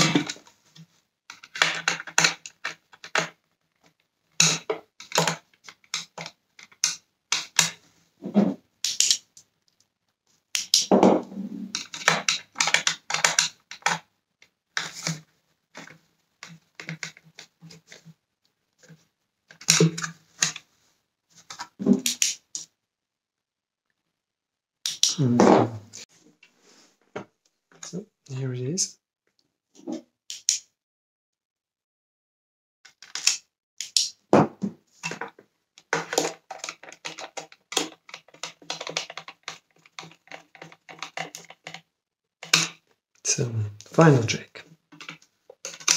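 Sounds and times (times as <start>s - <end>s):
hard plastic parts clicking: 1.3s - 7.8s, 11.7s - 14.1s, 14.8s - 18.0s, 32.9s - 42.8s, 44.9s - 45.9s
plastic clicks and taps: 32.9s - 41.8s.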